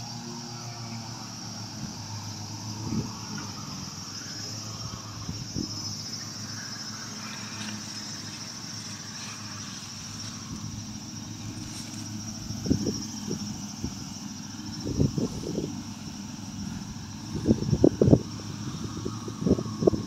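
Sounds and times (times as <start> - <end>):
high-pitched insect drone: 0.0 - 20.0
low engine-like hum: 0.0 - 20.0
footsteps on leaf litter: 6.7 - 10.6, 11.4 - 12.2.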